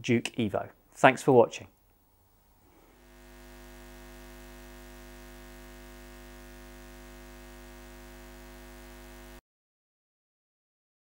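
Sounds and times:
steady electrical hum: 0:00.6 - 0:09.4.

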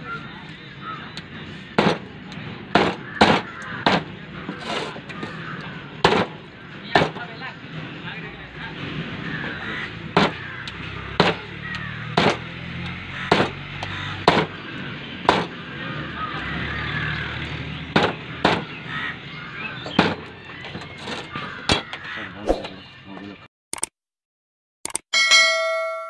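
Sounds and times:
knife chopping on wooden block: 0:01.8 - 0:02.0, 0:02.7 - 0:05.3, 0:06.0 - 0:06.4, 0:10.2 - 0:12.5, 0:13.3 - 0:14.6, 0:15.3 - 0:15.6.

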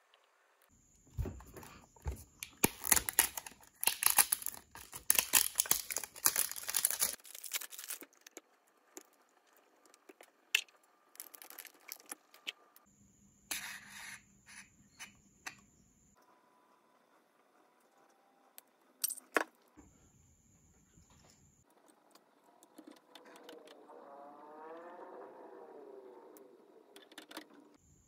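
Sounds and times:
plastic crinkling and clicking: 0:01.6 - 0:12.8.

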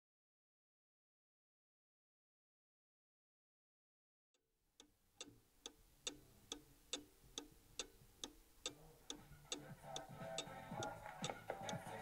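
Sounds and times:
clock pendulum ticking: 0:04.8 - 0:12.0.

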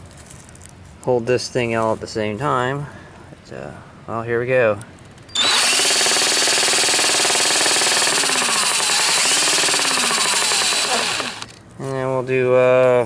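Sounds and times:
cordless drill spinning: 0:05.3 - 0:11.6
loud steady rattle: 0:05.3 - 0:11.6.

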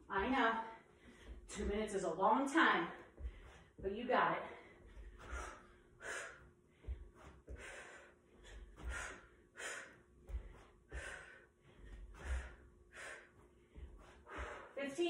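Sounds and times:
feet landing with dull thuds: 0:00.1 - 0:15.0
woman breathing hard: 0:00.8 - 0:01.5, 0:03.0 - 0:03.8, 0:04.4 - 0:14.8.

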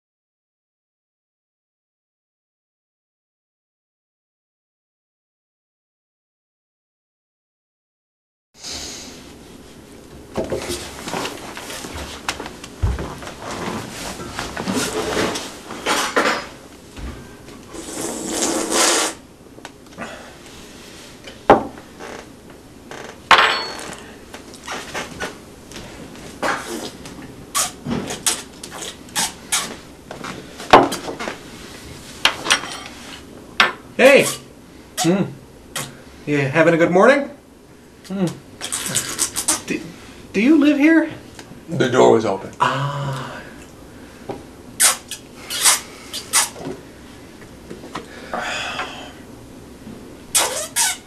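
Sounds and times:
dishes knocking on wooden table: 0:21.5 - 0:21.8.

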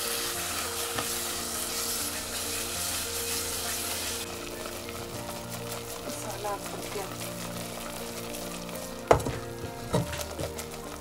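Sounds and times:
paste sizzling in a pot: 0:00.0 - 0:11.0
wooden spatula stirring: 0:00.0 - 0:11.0.

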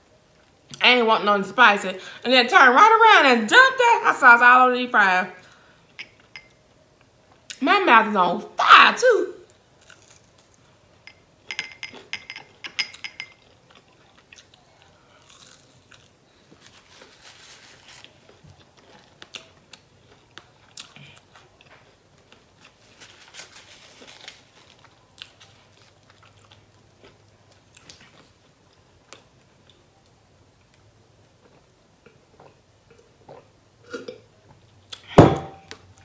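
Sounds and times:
crunching fries: 0:09.5 - 0:10.7, 0:13.4 - 0:30.8
person chewing with small clicks: 0:13.3 - 0:16.1, 0:18.3 - 0:22.5, 0:24.8 - 0:33.5.

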